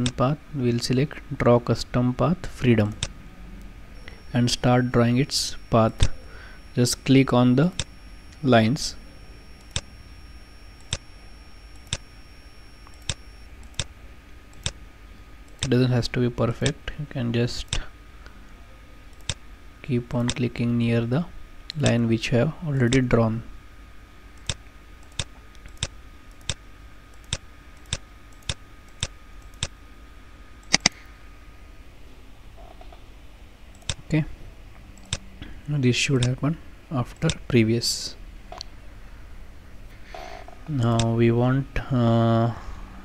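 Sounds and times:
computer mouse clicks: 11.7 - 12.1, 12.8 - 13.9, 15.5 - 15.8, 24.4 - 29.8, 30.6 - 31.0, 33.7 - 34.0.

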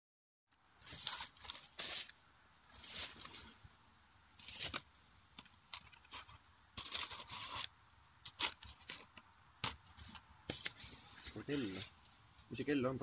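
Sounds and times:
matches scratching on matchbox: 0.8 - 3.6, 4.4 - 12.0.

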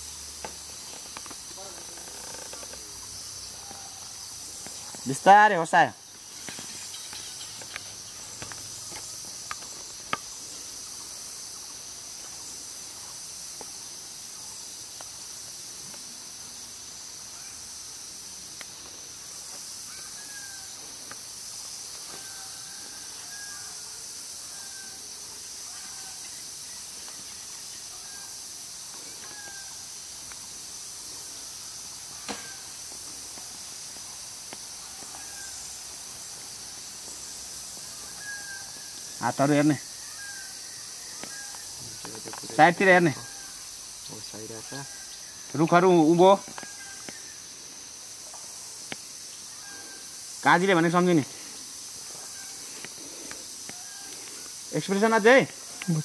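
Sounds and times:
high-pitched insect drone: 0.0 - 56.0.

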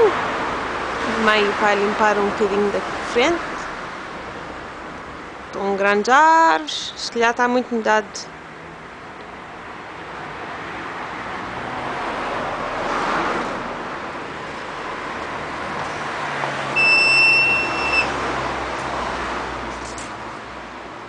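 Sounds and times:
street traffic passing: 0.0 - 21.0
high-pitched beep: 16.8 - 18.2.

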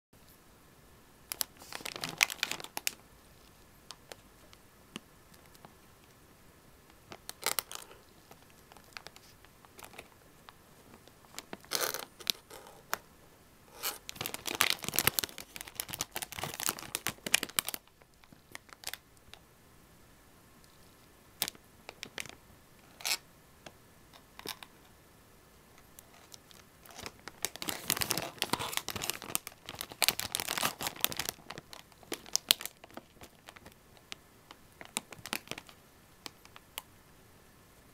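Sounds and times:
plastic bag crinkling: 1.3 - 3.0, 7.1 - 10.2, 11.2 - 13.0, 13.7 - 19.0, 26.0 - 33.8, 34.8 - 35.8.

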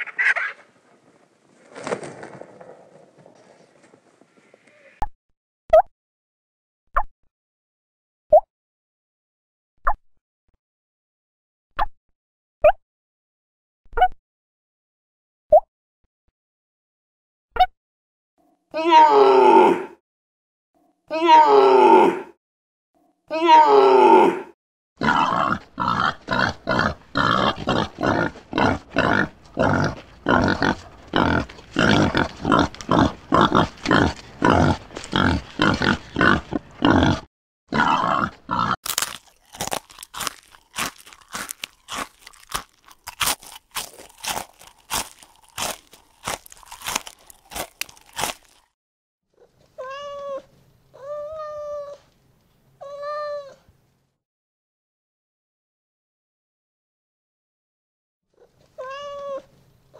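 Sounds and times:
chewing and crunching: 25.6 - 37.1, 38.2 - 48.8
cat meowing: 49.8 - 52.0, 52.8 - 53.6, 58.8 - 59.5.

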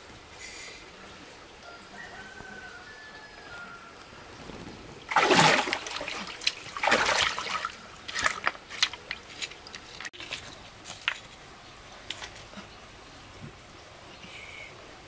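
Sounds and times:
big water splashes: 4.4 - 10.5
small splashes and drips: 5.1 - 12.7.

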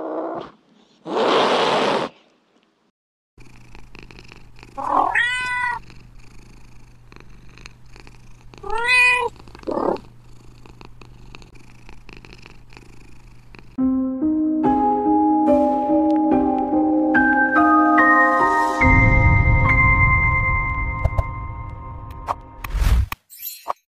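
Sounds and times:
cat purring: 3.4 - 13.8
chiming music: 13.9 - 22.2.

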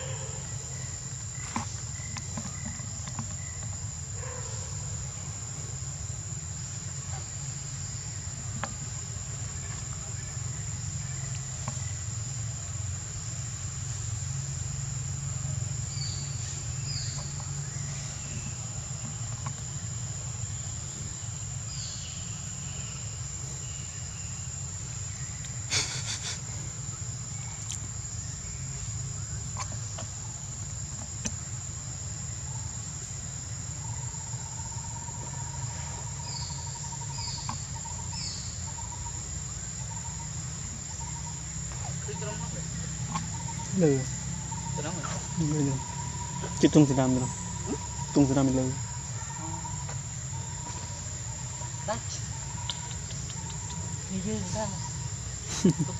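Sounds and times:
high-pitched insect drone: 33.6 - 55.9.

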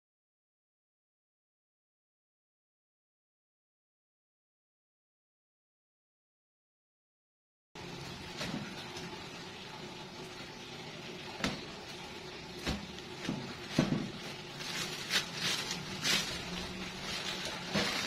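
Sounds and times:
knocks on metal oven: 12.6 - 14.2
plastic bag rustling: 12.6 - 18.0.

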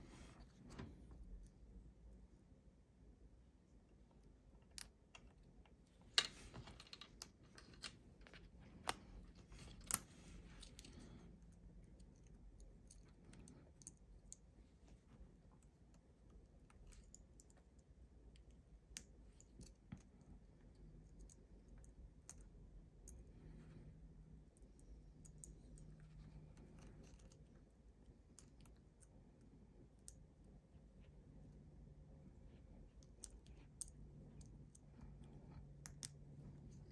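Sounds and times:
small clicks and taps: 32.5 - 36.9.

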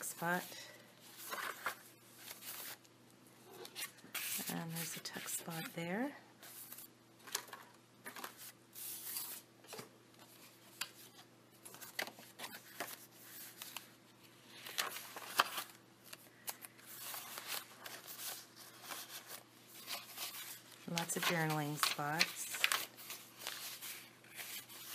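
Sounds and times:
paper pages rustling: 0.1 - 2.8, 6.4 - 24.9.

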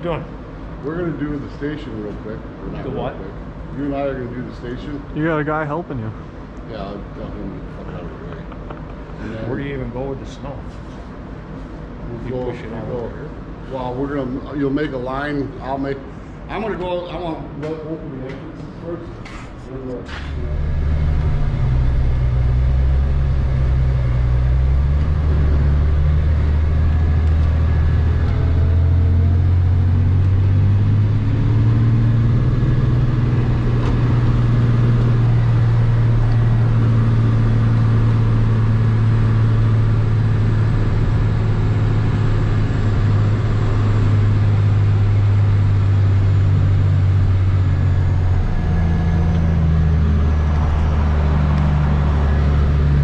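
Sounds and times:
truck engine running under load: 20.0 - 53.0.

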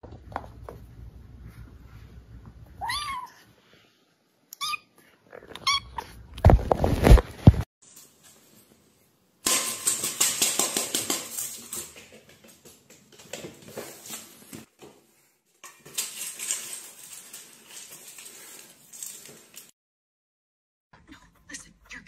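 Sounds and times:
dry food clattering in metal bowl: 9.5 - 14.2, 15.6 - 19.7.

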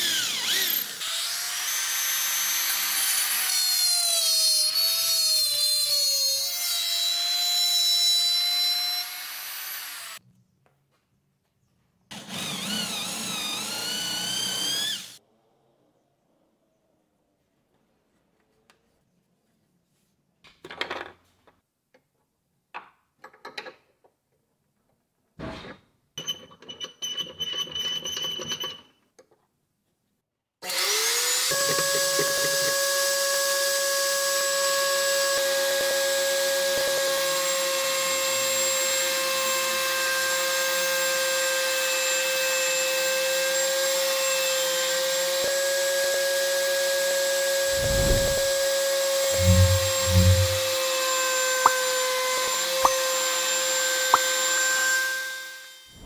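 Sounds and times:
router whining: 0.0 - 10.2, 12.1 - 15.2, 47.5 - 55.9.

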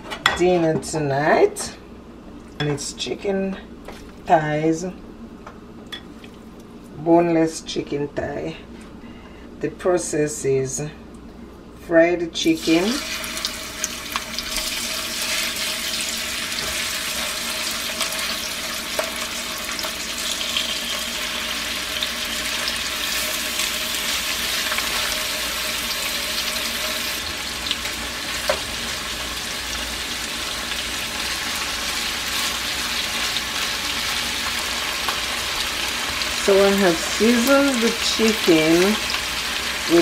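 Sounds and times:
chicken sizzling in hot oil: 12.6 - 40.0.

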